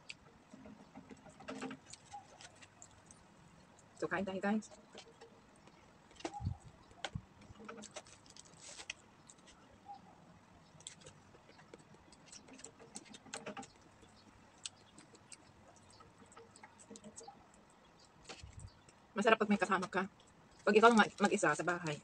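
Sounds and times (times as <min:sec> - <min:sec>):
chewing: 0:01.3 - 0:04.0, 0:10.7 - 0:19.0.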